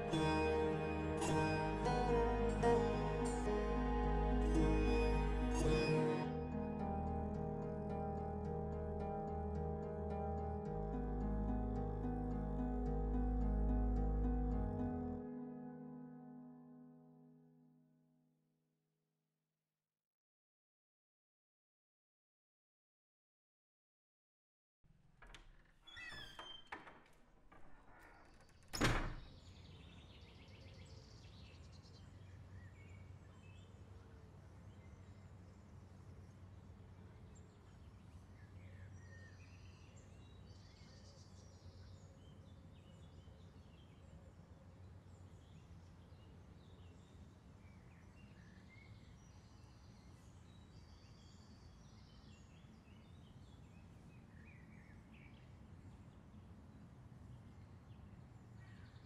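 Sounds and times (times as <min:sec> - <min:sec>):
low steady hum: 0:00.0 - 0:16.6.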